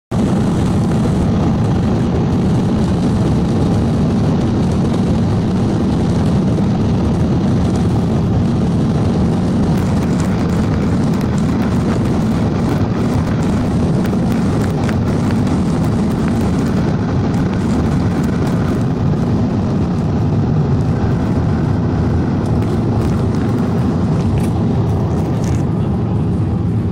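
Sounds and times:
jet engines rumbling: 0.1s - 26.9s
rolling wheels: 3.9s - 25.7s.

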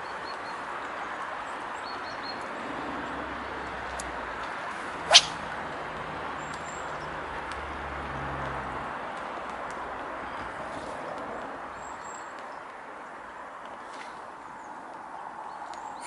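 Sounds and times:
outdoor background noise: 0.0s - 16.0s
fishing rod swishing through air: 5.1s - 5.5s.

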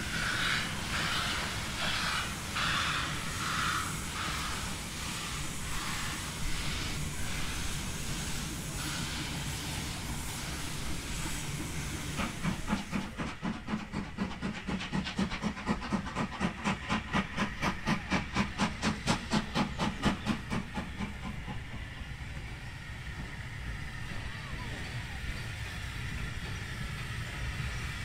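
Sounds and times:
steam hissing: 0.0s - 28.0s
steam locomotive exhaust beats: 0.0s - 28.0s.

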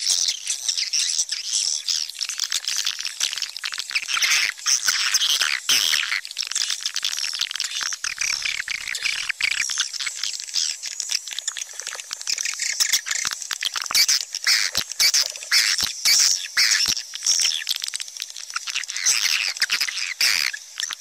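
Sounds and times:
swiftlets twittering and chirping: 0.0s - 21.0s.

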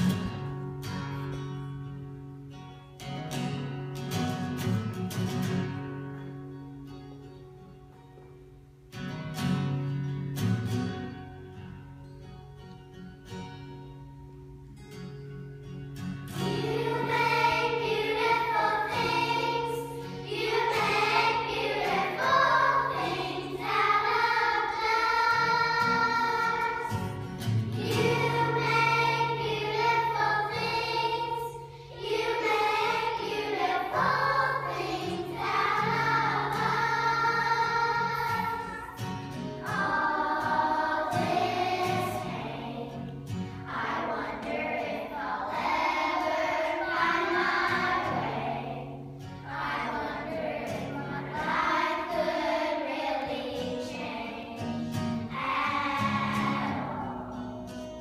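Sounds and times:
children's choir singing: 0.0s - 0.6s, 16.3s - 58.0s
acoustic guitar: 0.0s - 58.0s.

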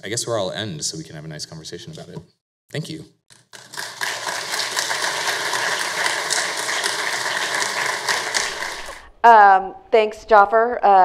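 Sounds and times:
audience applauding: 3.5s - 9.1s.

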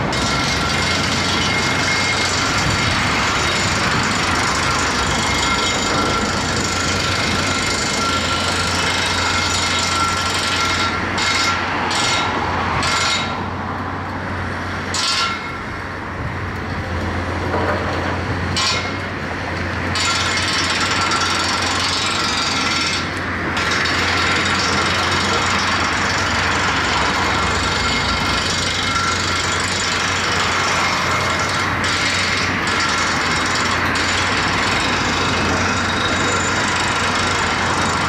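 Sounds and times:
excavator diesel engine hum: 0.0s - 38.0s
hydraulic noise: 19.9s - 38.0s.

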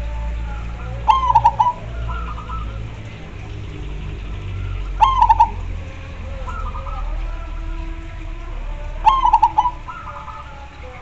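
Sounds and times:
dove cooing: 0.9s - 3.8s, 4.5s - 7.6s, 9.0s - 11.0s.

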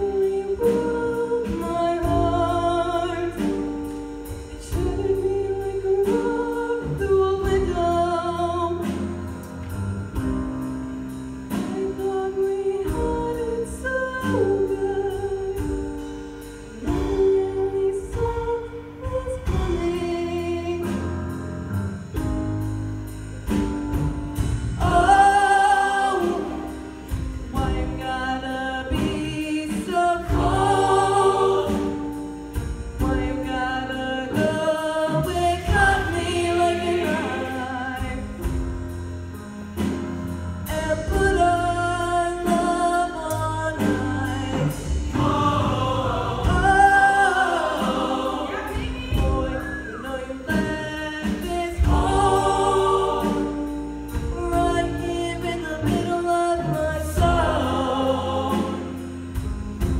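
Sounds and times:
choir singing in harmony: 0.0s - 10.3s, 11.1s - 59.9s.

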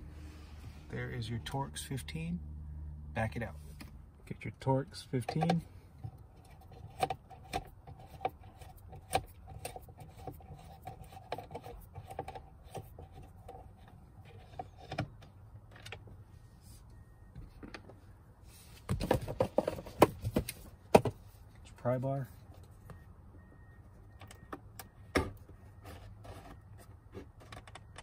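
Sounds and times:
tools clattering and knocking: 18.9s - 21.2s.

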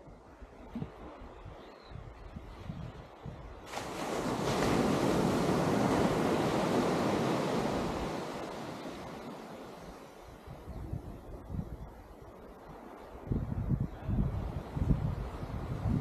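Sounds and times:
wave breaking on sand: 3.6s - 10.7s.

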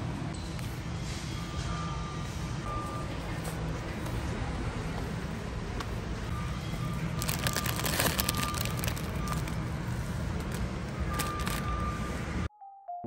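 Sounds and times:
low store hum: 0.0s - 12.5s
plastic bag crinkling: 7.2s - 9.6s, 11.1s - 11.7s.

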